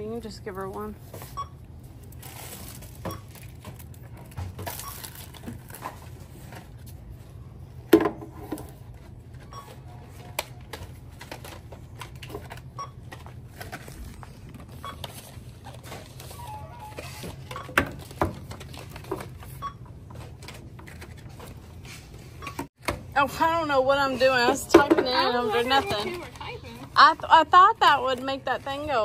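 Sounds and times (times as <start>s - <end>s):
items clattering on counter: 24.5s - 26.5s.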